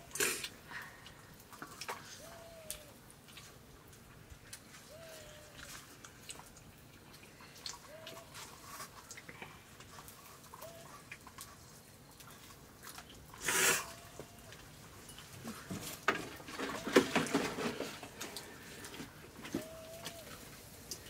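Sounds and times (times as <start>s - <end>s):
chewing: 0.2s - 15.7s.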